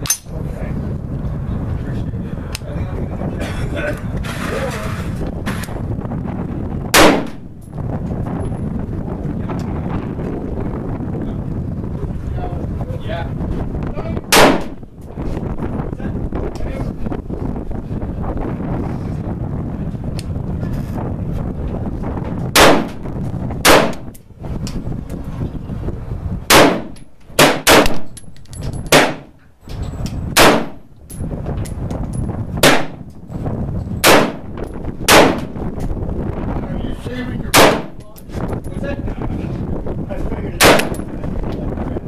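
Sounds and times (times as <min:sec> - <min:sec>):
wind noise: 0:00.0 - 0:42.0
rifle shots: 0:06.9 - 0:07.4, 0:14.3 - 0:14.8, 0:22.6 - 0:23.0, 0:23.6 - 0:24.1, 0:26.5 - 0:28.1, 0:28.9 - 0:29.3, 0:30.4 - 0:30.8, 0:32.6 - 0:33.0, 0:34.0 - 0:34.5, 0:35.1 - 0:35.5, 0:37.5 - 0:38.0, 0:40.6 - 0:41.0.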